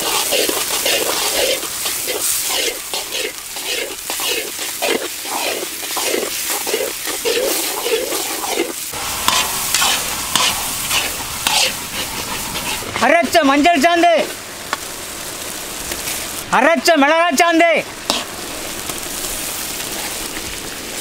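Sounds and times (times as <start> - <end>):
metal ladle scraping pan: 0.0 - 13.0, 18.1 - 18.3
vegetables sizzling in oil: 0.0 - 21.0.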